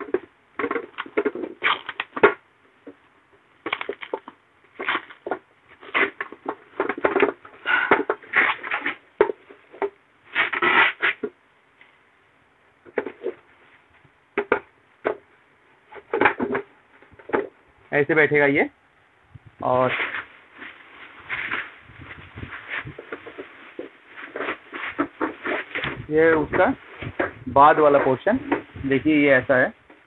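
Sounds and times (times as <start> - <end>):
plastic wrapping crinkling: 3.6 - 7.4.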